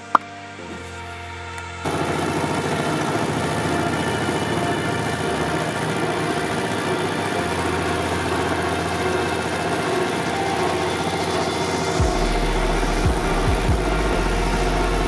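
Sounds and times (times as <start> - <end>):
tractor engine running: 1.8 - 15.0.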